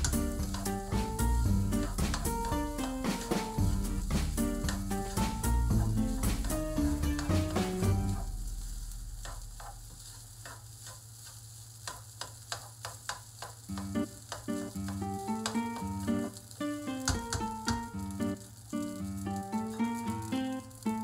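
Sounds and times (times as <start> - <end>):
background music: 0.0 - 8.4
faint sizzle: 0.0 - 21.0.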